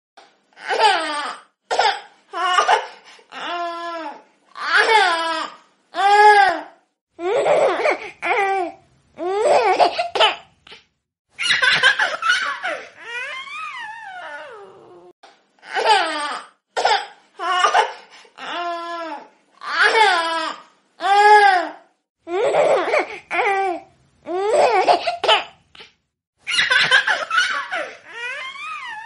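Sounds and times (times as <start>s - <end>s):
baby laughing: 11.4s - 14.6s, 26.5s - 29.0s
baby squealing laugh: 11.4s - 14.7s, 26.5s - 29.0s.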